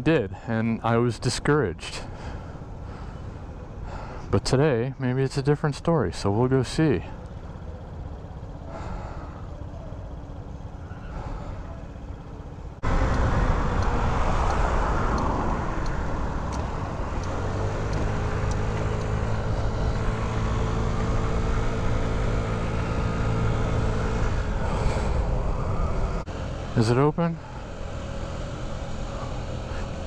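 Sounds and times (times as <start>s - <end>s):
scooter engine humming: 2.1s - 4.3s, 6.3s - 30.0s
wind and road rush: 10.0s - 30.0s.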